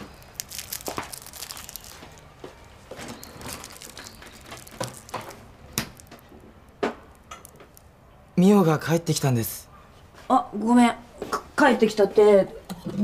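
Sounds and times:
sweet wrapper crinkling: 0:00.0 - 0:06.5, 0:07.1 - 0:07.9.

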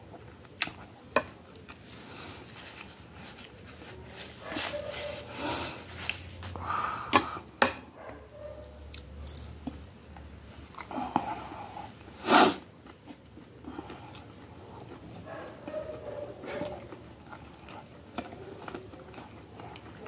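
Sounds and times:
chewing crunchy food: 0:08.1 - 0:20.0.

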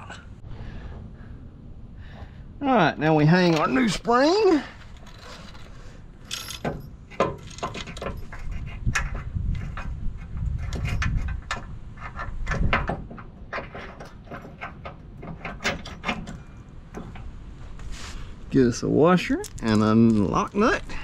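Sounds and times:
low rumble: 0:00.0 - 0:02.6
metal clicks and knocks: 0:06.3 - 0:17.4.

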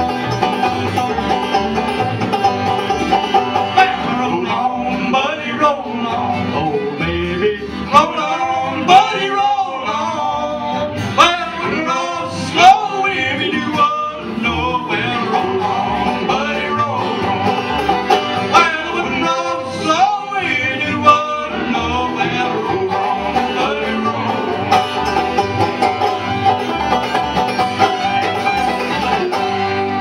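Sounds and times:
bluegrass band playing: 0:00.0 - 0:30.0.

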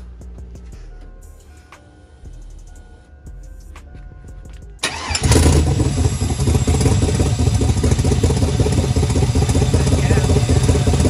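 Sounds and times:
engine cranking and starting: 0:04.8 - 0:11.0
loud engine idle: 0:04.8 - 0:11.0.

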